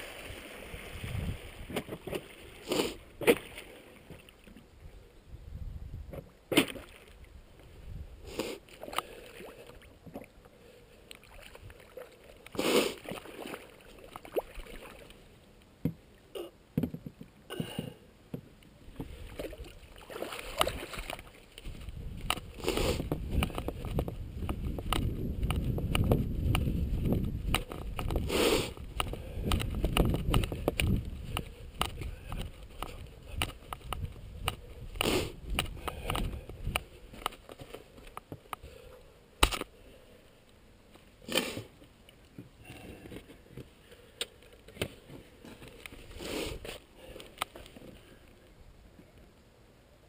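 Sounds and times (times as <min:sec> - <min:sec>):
water splashing: 0:00.0 - 0:04.6, 0:06.5 - 0:07.3, 0:11.1 - 0:15.3, 0:18.9 - 0:21.9
footsteps and handling noise: 0:20.6 - 0:38.7, 0:41.8 - 0:48.1.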